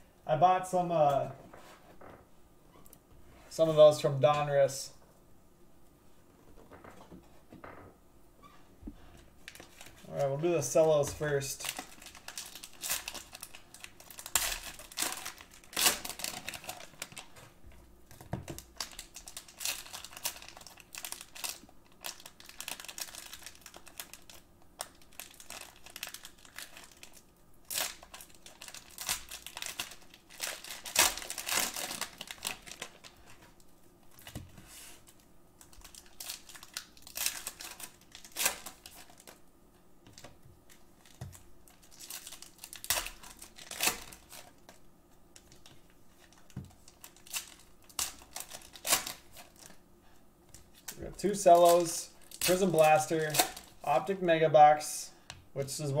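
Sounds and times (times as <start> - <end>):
plastic wrappers crinkling: 9.4 - 39.4, 40.1 - 49.8, 50.5 - 54.3.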